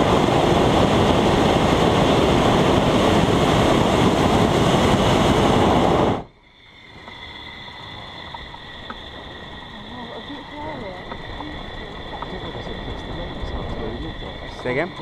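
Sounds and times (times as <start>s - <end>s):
propane burner blast: 0.0s - 6.3s.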